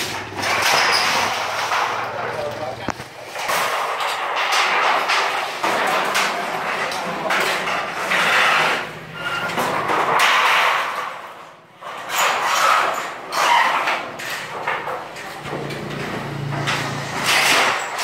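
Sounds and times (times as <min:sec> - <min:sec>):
metal sheets scraping and rattling: 0:00.0 - 0:18.0.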